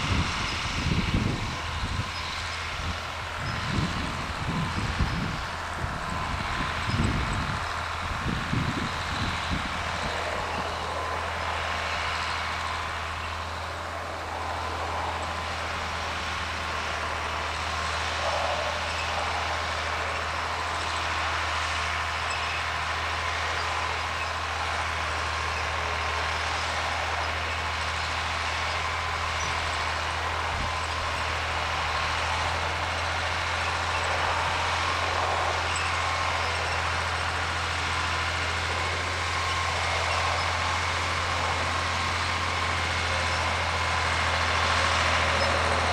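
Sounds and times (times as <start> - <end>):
tractor engine droning: 0.0 - 45.9.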